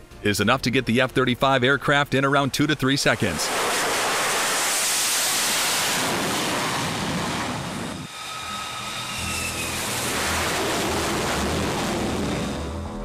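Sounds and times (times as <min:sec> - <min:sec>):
jet engine at full thrust: 0:03.0 - 0:13.0
jet passing overhead: 0:03.1 - 0:13.0.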